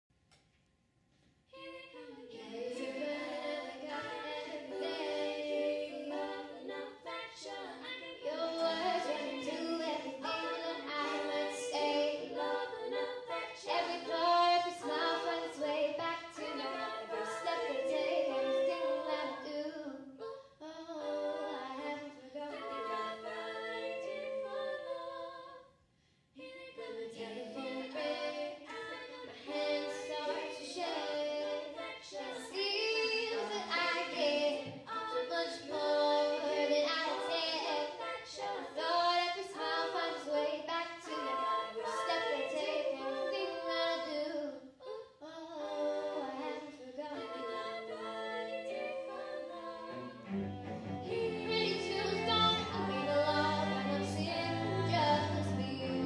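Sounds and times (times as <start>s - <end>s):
young female voices singing: 1.6s - 25.7s, 26.4s - 56.0s
string ensemble: 2.4s - 19.8s, 47.2s - 56.0s.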